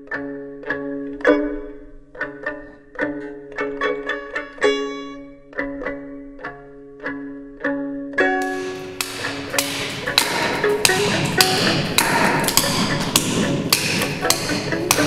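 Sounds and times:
plucked string notes: 0.0 - 15.0
hammer knocking on wood: 8.4 - 15.0.

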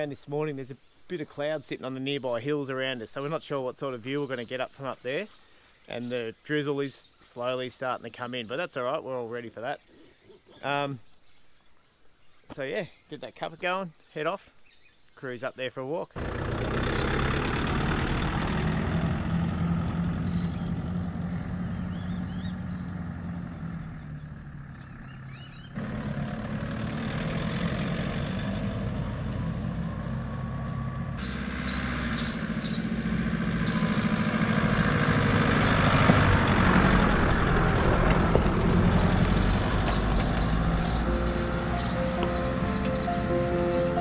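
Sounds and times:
tyres on gravel and dirt: 16.2 - 44.0
vehicle engine running: 16.2 - 44.0.

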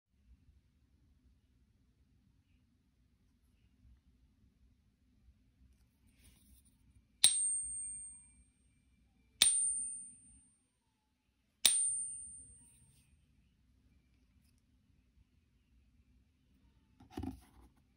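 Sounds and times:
coin ringing when tapped: 7.2 - 8.3, 9.4 - 10.4, 11.7 - 12.8.

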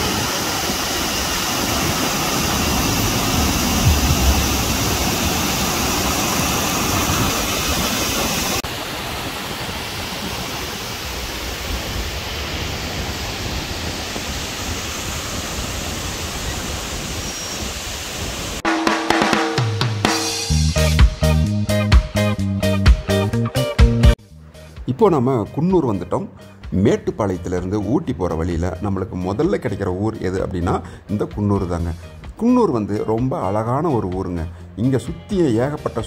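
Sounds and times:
waterfall rushing over rocks: 0.0 - 18.6.

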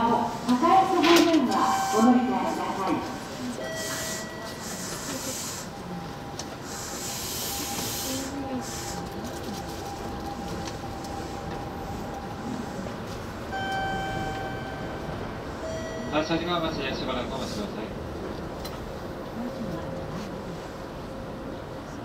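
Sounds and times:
train running on track: 0.0 - 22.0
hiss: 6.7 - 9.1.

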